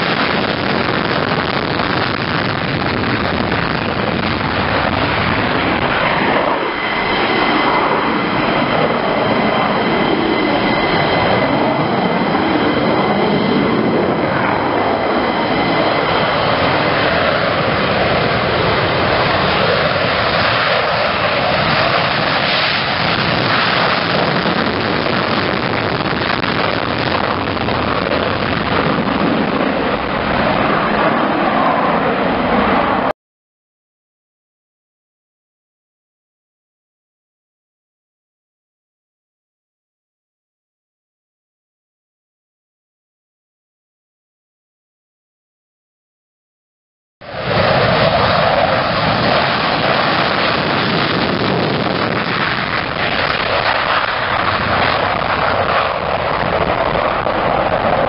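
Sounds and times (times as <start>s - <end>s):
high jet whine: 0.0s - 33.1s, 47.2s - 58.0s
jet taking off: 0.0s - 33.2s, 47.2s - 58.0s.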